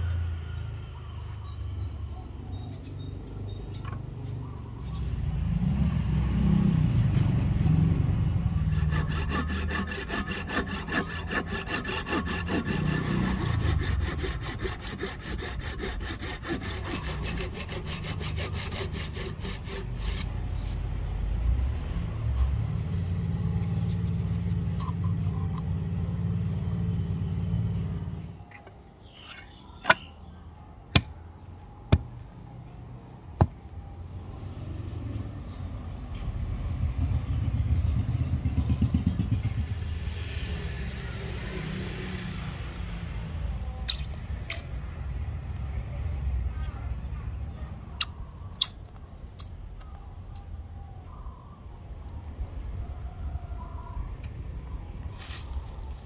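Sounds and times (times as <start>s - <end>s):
handsaw cutting wood: 8.5s - 20.8s.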